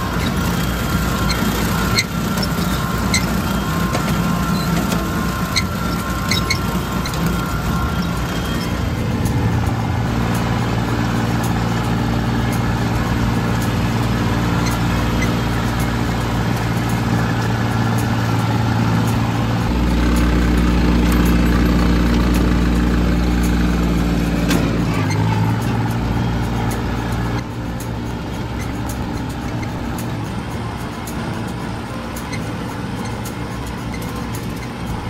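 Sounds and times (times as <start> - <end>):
tractor diesel engine running: 0.0 - 35.0.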